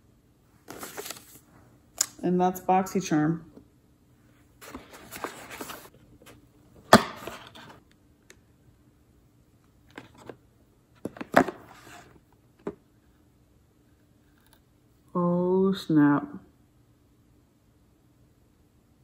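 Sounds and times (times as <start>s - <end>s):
packaging rustle: 0.6s - 1.5s, 4.6s - 5.9s.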